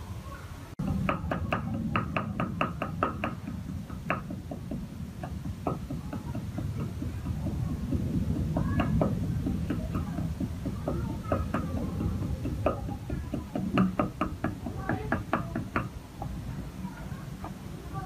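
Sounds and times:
steady low rumble: 0.7 - 18.0.

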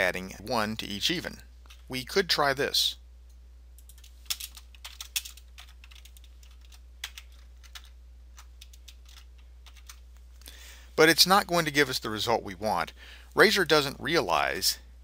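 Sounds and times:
faint low hum: 0.0 - 15.0
computer keyboard keystrokes: 3.8 - 10.0.

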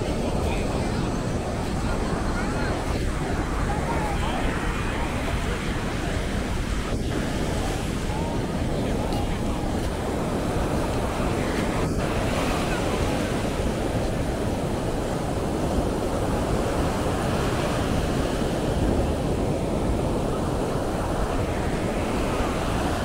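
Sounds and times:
surf breaking on beach: 0.0 - 23.0
wind buffeting microphone: 0.0 - 23.0.

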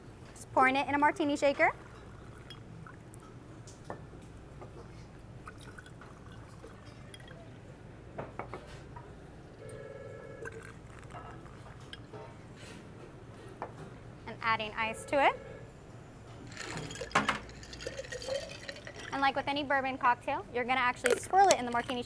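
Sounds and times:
liquid pouring into glass: 1.7 - 3.3, 5.4 - 7.5, 10.4 - 12.1, 16.5 - 19.2
bottle clinking against glass: 16.5 - 19.2.

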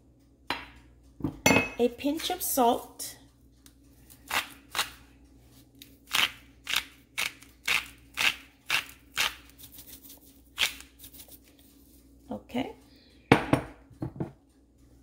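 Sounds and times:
salt grinder rasping: 6.1 - 11.3.

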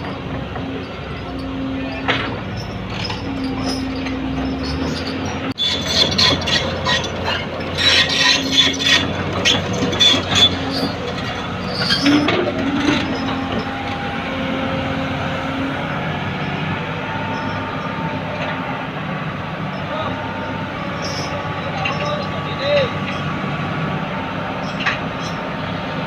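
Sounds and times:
diesel engines running: 0.0 - 26.0
high metallic squeaks and clanks: 0.8 - 15.2, 20.9 - 23.3.

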